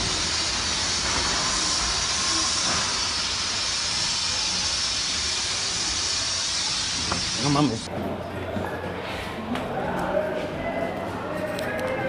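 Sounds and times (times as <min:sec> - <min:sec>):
outdoor hiss: 0:00.0 - 0:07.9.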